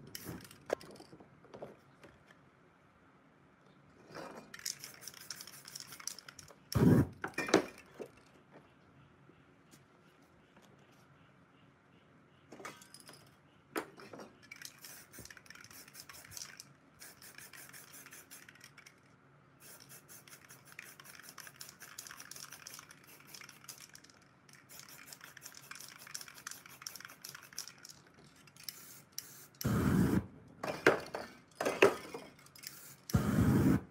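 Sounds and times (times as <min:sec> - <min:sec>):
spray can hissing: 0:04.6 - 0:07.0, 0:14.6 - 0:18.8, 0:19.6 - 0:28.0, 0:28.6 - 0:30.2, 0:32.6 - 0:33.9.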